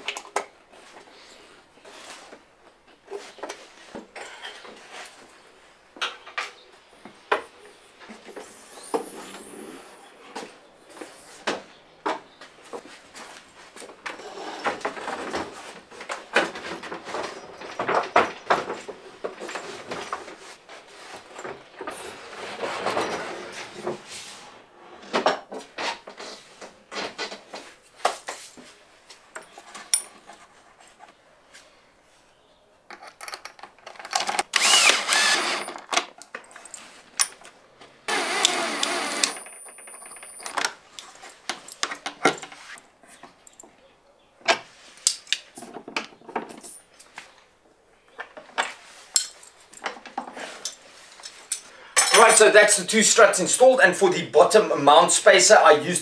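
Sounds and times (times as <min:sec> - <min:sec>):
bolts and spanner rattling on wood: 0:14.0 - 0:20.3, 0:32.9 - 0:37.5, 0:38.1 - 0:40.8.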